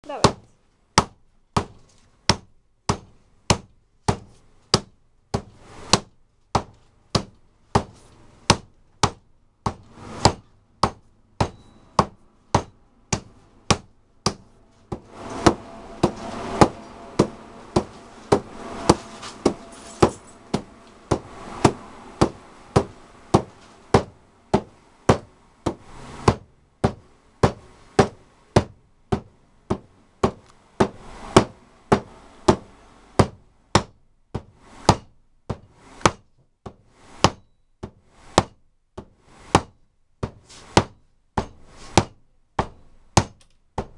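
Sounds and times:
steady rushing noise: 14.4 - 33.8
hand strikes on leather pad: 33.2 - 43.9.

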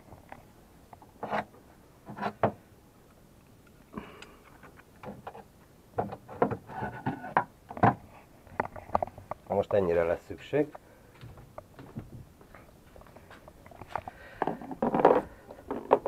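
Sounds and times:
objects clattering on a wooden shelf: 5.0 - 8.0, 13.8 - 16.0.

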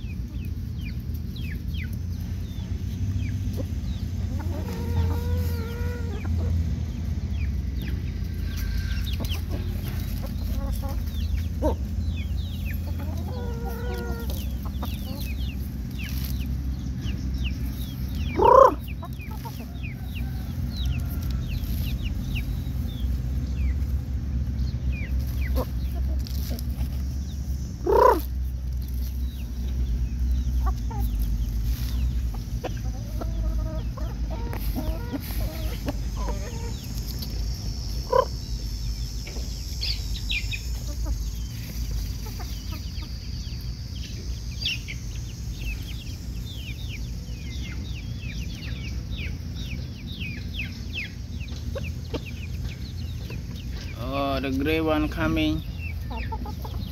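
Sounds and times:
chickens clucking: 0.0 - 56.9
chicken short calls: 4.2 - 6.5, 12.8 - 15.4, 18.2 - 19.6, 27.8 - 28.4, 30.5 - 38.4.

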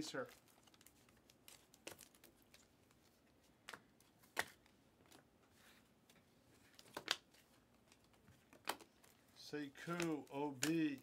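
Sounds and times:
cards clicking off stack: 9.8 - 11.0.

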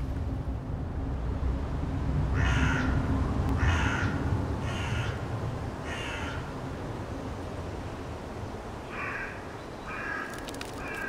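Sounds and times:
low steady rumble: 0.0 - 8.7.

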